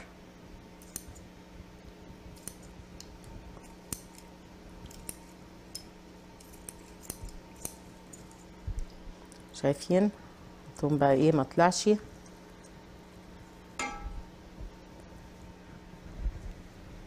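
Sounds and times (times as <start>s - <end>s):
faint steady hum: 0.0s - 17.0s
scissors snipping netting: 2.4s - 8.3s.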